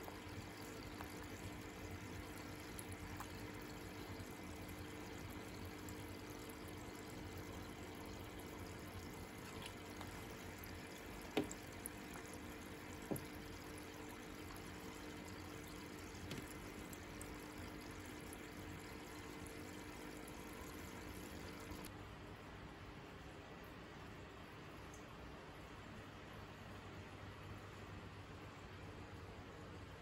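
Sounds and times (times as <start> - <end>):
faint hiss with low hum: 0.0 - 30.0
turtle moving in water: 9.1 - 13.5.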